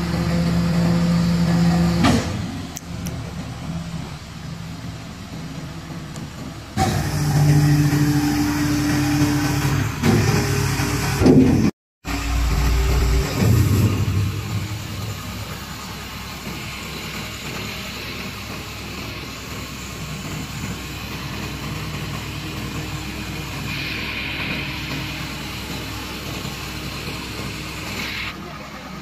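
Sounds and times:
diesel truck engine idling: 0.0s - 7.9s, 12.1s - 29.0s
hiss: 12.1s - 28.6s.

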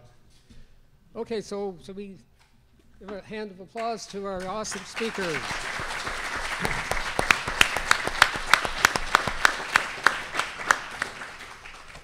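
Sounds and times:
loud close hand claps: 4.1s - 12.0s
audience applauding: 4.4s - 12.0s.

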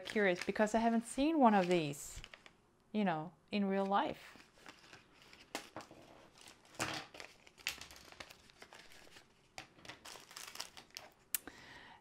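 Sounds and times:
plastic pouch crinkling: 4.4s - 11.2s.

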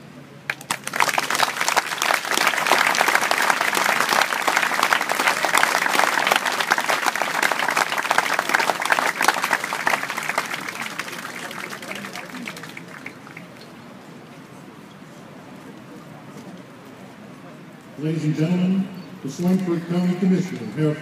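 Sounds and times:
crowd applauding: 0.5s - 13.9s.

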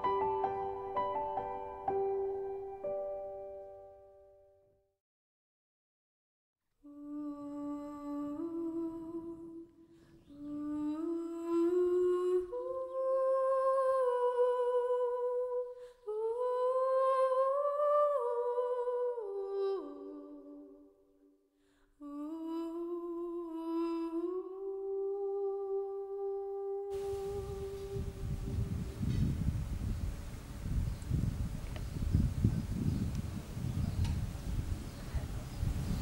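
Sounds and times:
woman humming a slow tune: 6.8s - 20.7s, 22.0s - 30.0s.

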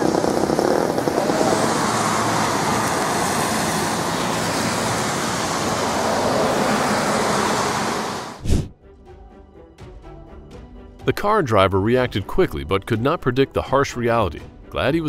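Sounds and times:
road traffic hiss: 0.0s - 8.5s.

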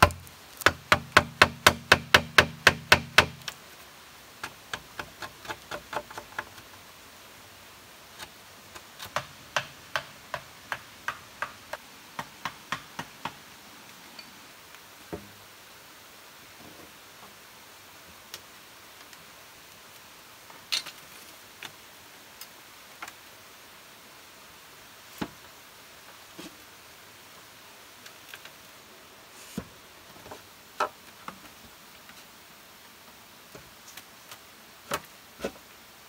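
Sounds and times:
knife tapping on bamboo: 9.0s - 11.6s, 12.2s - 13.4s.

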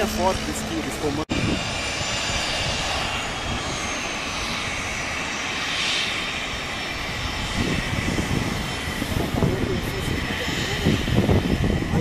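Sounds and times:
jet engines whining: 0.0s - 12.0s.

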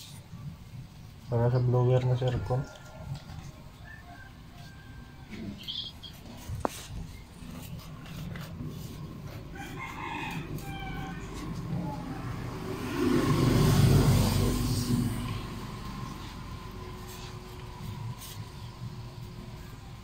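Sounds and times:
rooster crowing: 2.1s - 5.7s, 9.2s - 18.6s
low rumble: 11.2s - 19.5s.

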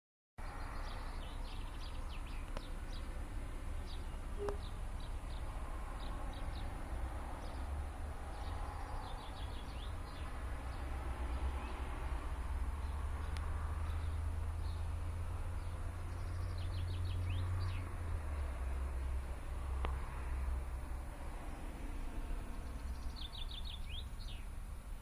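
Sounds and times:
small birds chirping: 0.4s - 25.0s
steady low rumble: 12.3s - 25.0s.

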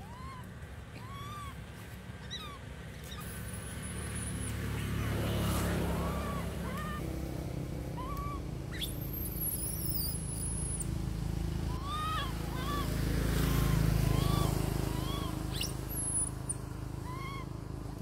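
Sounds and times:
passing vehicle rumble: 0.0s - 18.0s
short chirp-like calls: 8.0s - 10.9s, 11.7s - 17.5s.

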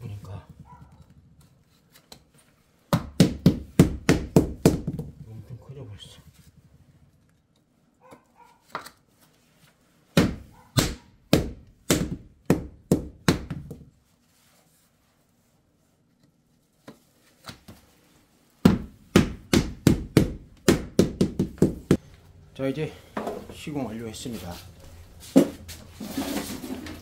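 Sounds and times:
rubber mallet thudding on wood: 2.9s - 5.3s, 10.1s - 13.9s, 18.6s - 22.0s.

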